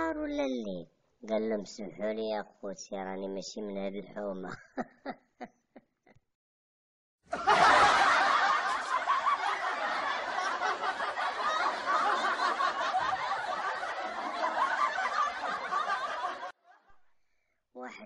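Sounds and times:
laugh track: 0:04.4 - 0:06.2, 0:07.3 - 0:17.0.

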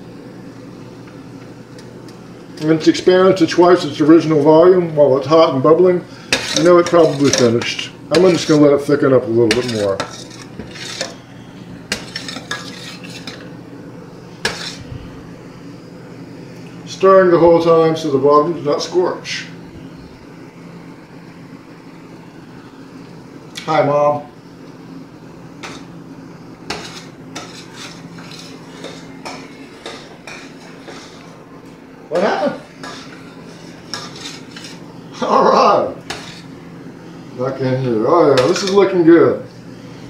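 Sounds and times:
spoon stirring in metal saucepan: 0:06.3 - 0:08.6, 0:09.5 - 0:11.2, 0:11.9 - 0:13.5, 0:14.4 - 0:14.8, 0:26.7 - 0:31.3, 0:32.8 - 0:34.9, 0:36.1 - 0:36.6.

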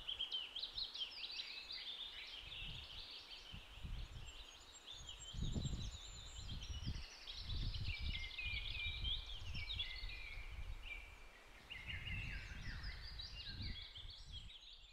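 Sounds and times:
wind buffeting microphone: 0:02.5 - 0:04.4, 0:05.1 - 0:11.1, 0:11.7 - 0:14.7.

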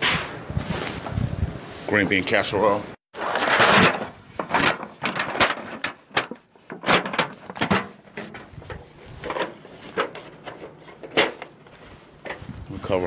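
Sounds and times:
aluminium foil crinkling: 0:03.2 - 0:13.0.

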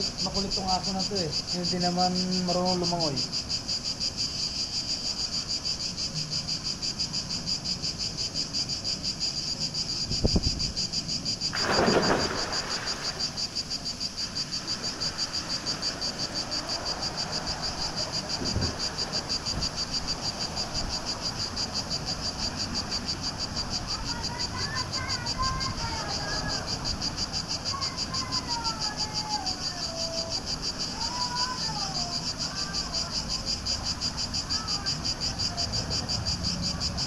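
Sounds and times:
insects chorus pulsing: 0:00.0 - 0:37.0
person splashing into pool: 0:11.5 - 0:13.5.

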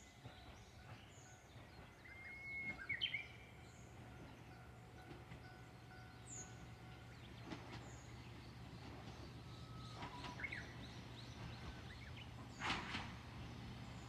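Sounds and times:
birds calling: 0:00.2 - 0:14.0.

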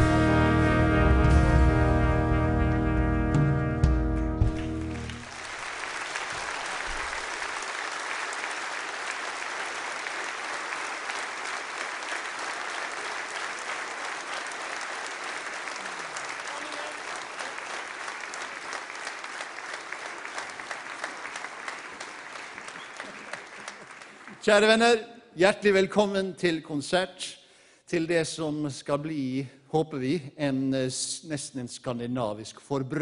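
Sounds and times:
audience applauding: 0:04.4 - 0:24.8.

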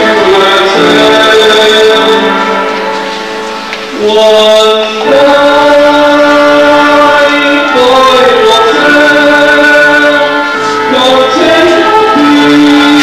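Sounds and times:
person singing long notes: 0:00.0 - 0:03.2, 0:03.8 - 0:13.0
instrumental accompaniment: 0:00.0 - 0:13.0.

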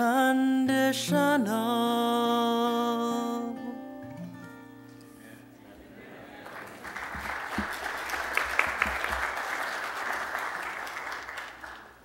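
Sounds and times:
congregation applauding: 0:06.2 - 0:12.0.

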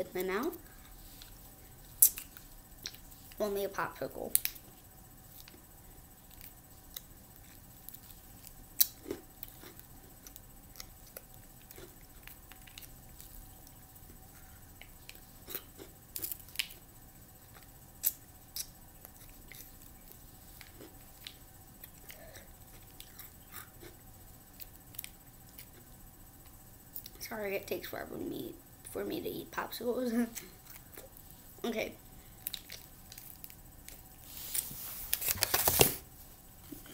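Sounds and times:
plastic wrapper crinkling: 0:34.3 - 0:36.0.

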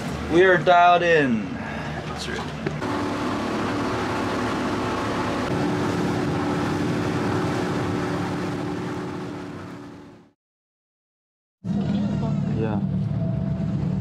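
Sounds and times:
motorboat engine drone: 0:01.4 - 0:10.4, 0:11.6 - 0:14.0
water rushing against hull: 0:01.8 - 0:10.4.

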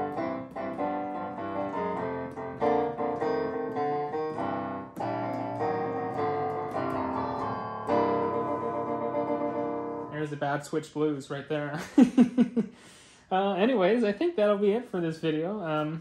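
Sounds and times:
electronic keyboard piano playing: 0:00.0 - 0:10.6.

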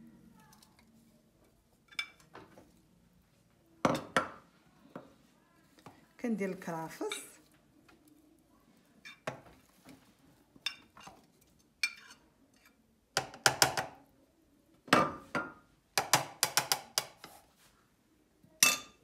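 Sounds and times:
metal spoon clinking on bowls: 0:01.8 - 0:02.3, 0:10.6 - 0:12.8, 0:18.6 - 0:19.0.

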